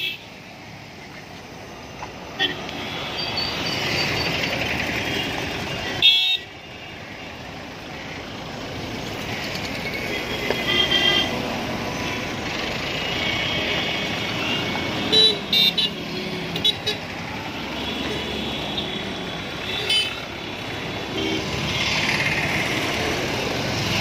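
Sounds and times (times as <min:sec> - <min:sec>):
car horns tooting: 0:05.1 - 0:06.5, 0:10.0 - 0:12.2, 0:13.2 - 0:17.1, 0:17.7 - 0:20.2
cars driving past: 0:16.0 - 0:24.0.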